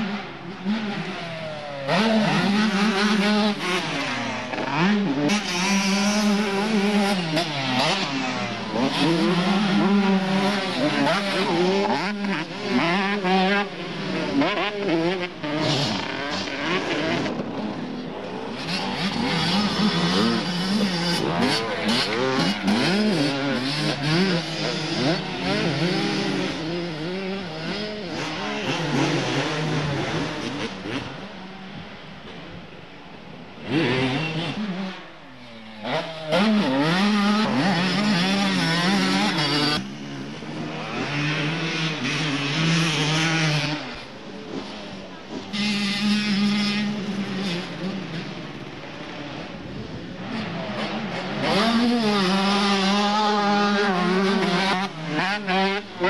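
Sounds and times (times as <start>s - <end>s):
motocross bike engines revving: 0.0s - 56.0s.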